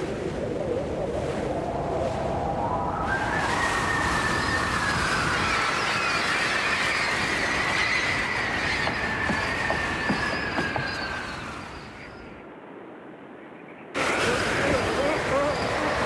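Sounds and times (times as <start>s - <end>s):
wind and sea rushing: 0.0s - 16.0s
high sliding whistling tone: 2.3s - 12.4s, 14.2s - 16.0s.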